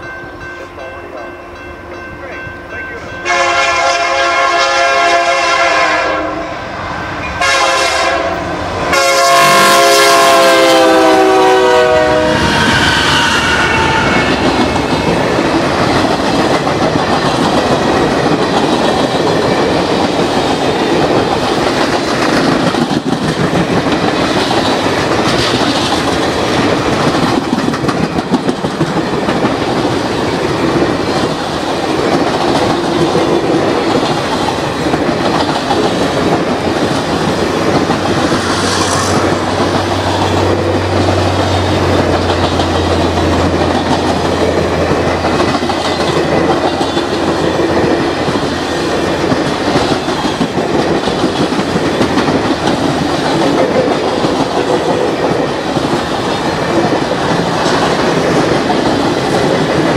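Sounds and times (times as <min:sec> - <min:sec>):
locomotive air horn: 0:03.2 - 0:06.6, 0:07.4 - 0:14.5
train wheels clickety-clack: 0:09.4 - 0:59.9.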